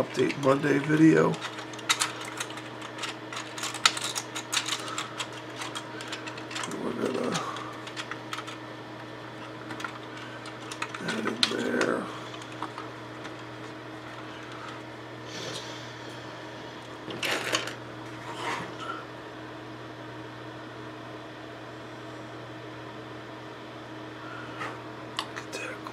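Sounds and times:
plastic parts clicking and tapping: 1.4s - 8.6s, 9.7s - 13.4s.

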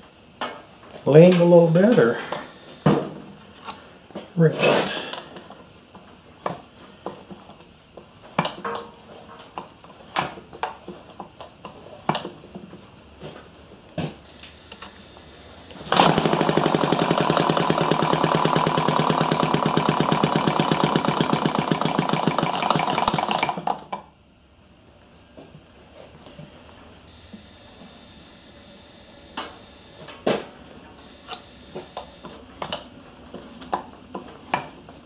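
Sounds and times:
model engine firing rapidly: 15.8s - 23.8s.

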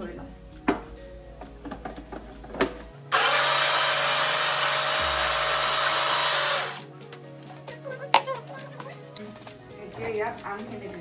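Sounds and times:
mixer grinder motor whining: 3.1s - 6.8s.

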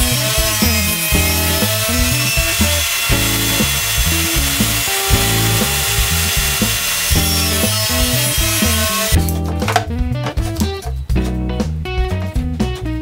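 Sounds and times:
table saw cutting board: 0.0s - 9.3s
background music with bass line: 0.0s - 13.0s.

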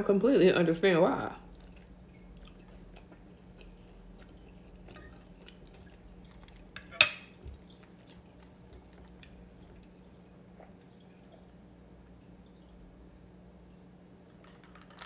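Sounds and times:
low steady hum: 0.0s - 15.0s
cutlery clinking on dishware: 6.8s - 7.4s.

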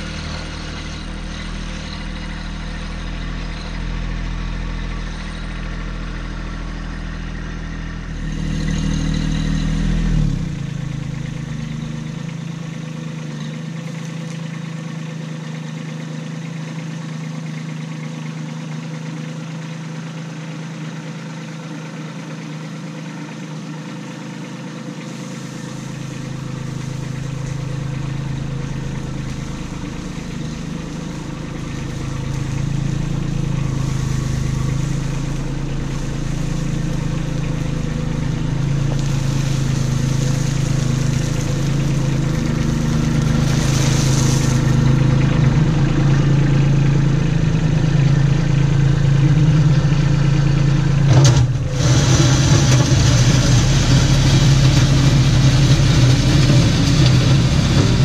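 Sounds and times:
tractor diesel engine running: 0.0s - 58.0s
gravel spilling from bucket: 25.1s - 46.1s, 51.3s - 58.0s.

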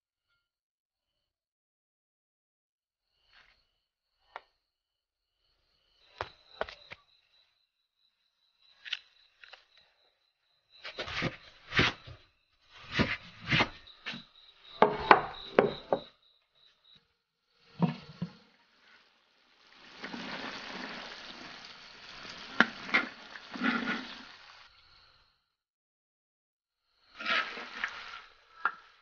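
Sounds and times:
insects trilling: 5.4s - 25.5s, 26.9s - 29.0s
rustling and knocks among plants: 10.8s - 16.1s
food sizzling in a wok: 17.6s - 25.2s, 27.2s - 29.0s
spatula scraping a wok: 17.8s - 24.6s, 27.2s - 29.0s.

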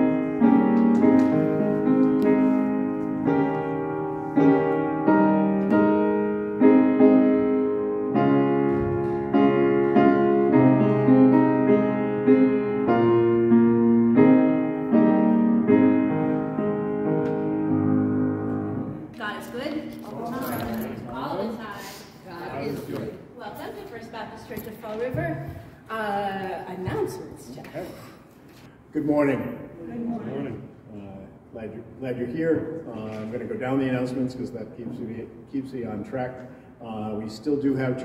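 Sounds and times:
slow piano chords: 0.0s - 21.6s.

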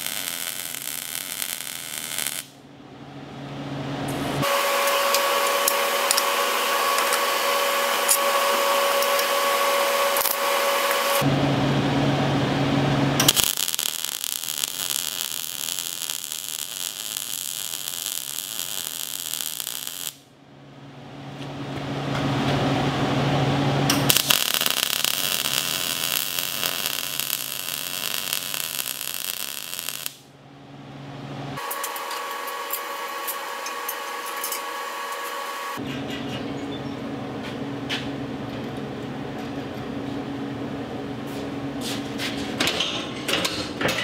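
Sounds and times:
welder arc crackling and sizzling: 0.0s - 2.6s, 4.3s - 11.3s, 13.2s - 20.2s, 23.9s - 30.2s, 31.6s - 35.8s.

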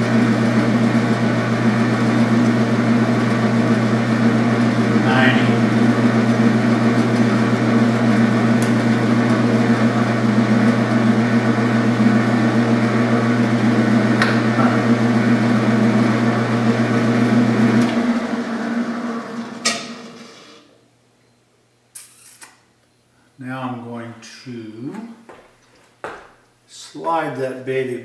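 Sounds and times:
lathe motor hum: 0.0s - 20.7s.

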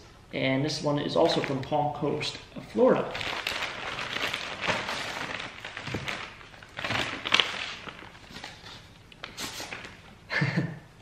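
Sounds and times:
plastic mailer crinkling: 1.2s - 8.9s
newspaper rustling: 3.0s - 10.0s.

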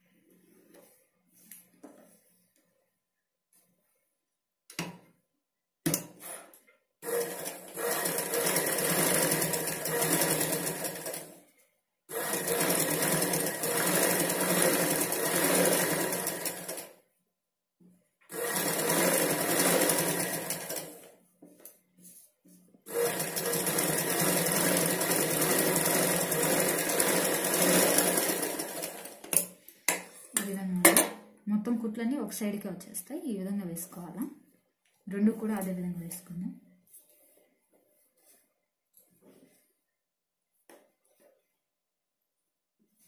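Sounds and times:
sewing machine stitching: 6.2s - 11.3s, 12.1s - 16.9s, 18.3s - 21.1s, 22.9s - 29.4s.

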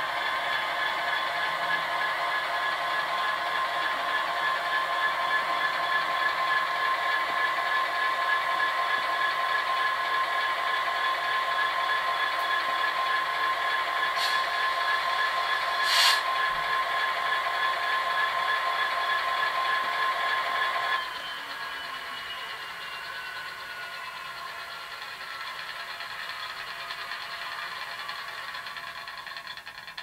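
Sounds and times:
model locomotive engine sound: 0.0s - 30.0s
brief hiss: 14.2s - 14.5s, 15.8s - 16.3s.

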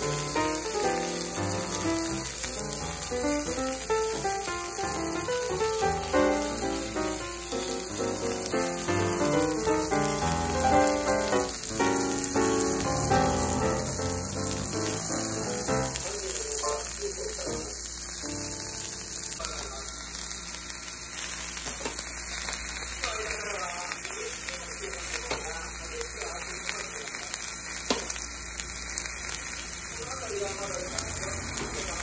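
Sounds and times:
background music: 0.0s - 16.1s
food sizzling on a griddle: 0.0s - 32.0s.

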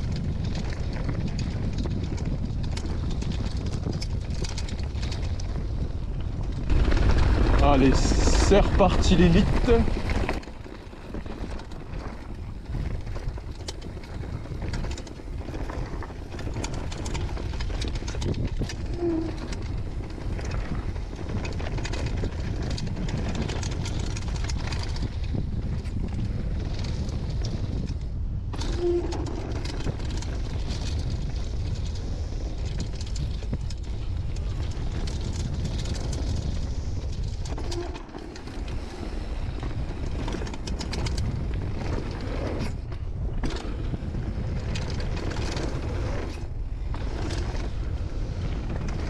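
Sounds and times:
bike rattling over bumps: 0.0s - 49.0s
wind rumble on microphone: 0.0s - 49.0s.

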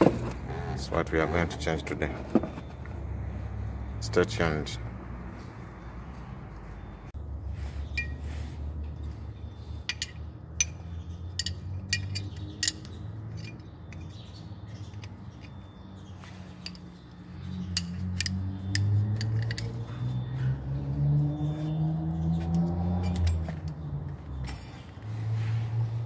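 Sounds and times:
metal tools clicking: 9.7s - 20.3s, 22.6s - 23.8s.

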